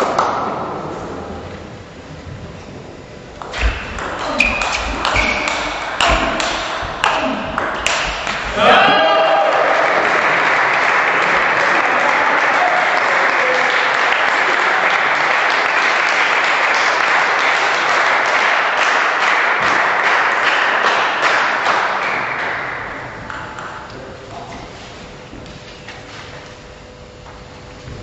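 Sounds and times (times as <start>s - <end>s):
crowd applauding: 5.0s - 24.1s.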